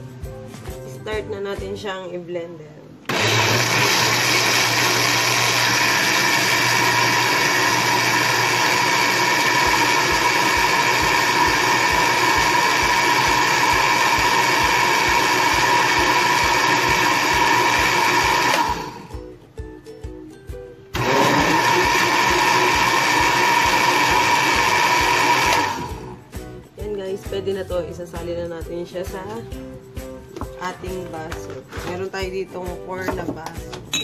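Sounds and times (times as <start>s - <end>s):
electric blender running: 3.1s - 19.2s, 20.9s - 26.2s.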